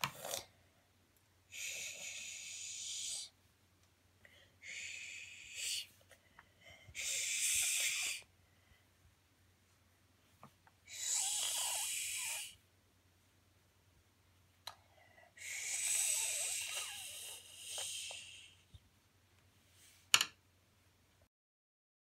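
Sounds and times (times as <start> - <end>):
child making a sh sound: 7.0 - 8.2, 15.5 - 18.3.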